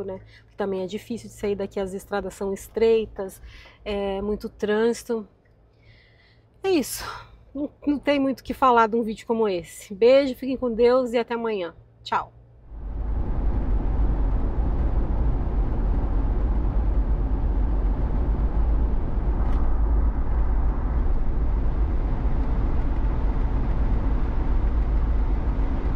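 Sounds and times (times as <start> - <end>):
vehicle road noise at highway speed: 10.0 - 25.9.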